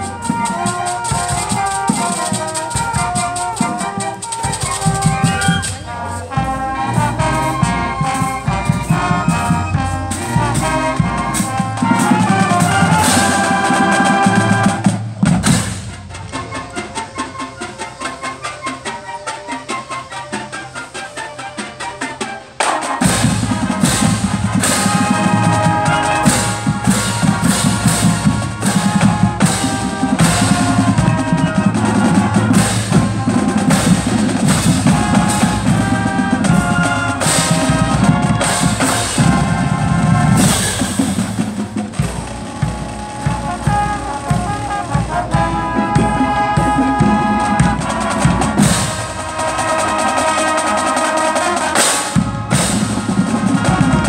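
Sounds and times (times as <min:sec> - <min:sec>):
brass chords: 0:00.0 - 0:54.0
snare drum: 0:00.0 - 0:54.0
timpani: 0:00.0 - 0:54.0
bass drums: 0:02.6 - 0:16.5, 0:23.0 - 0:49.3.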